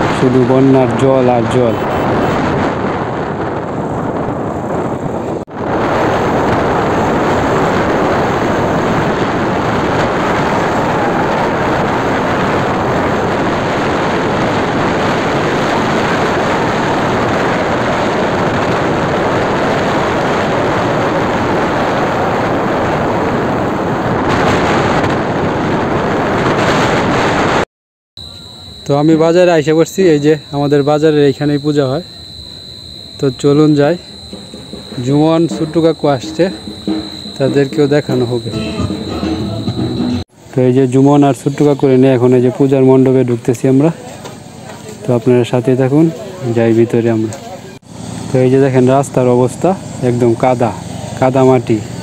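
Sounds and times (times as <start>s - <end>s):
motorcycle road noise: 0.0s - 27.6s, 28.2s - 52.0s
wind on microphone: 1.3s - 27.6s.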